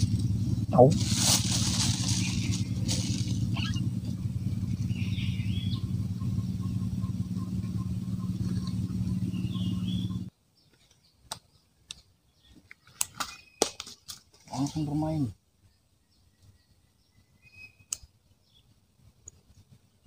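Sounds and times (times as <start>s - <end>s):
engine drone: 0.0s - 10.3s
birds chirping: 0.0s - 20.0s.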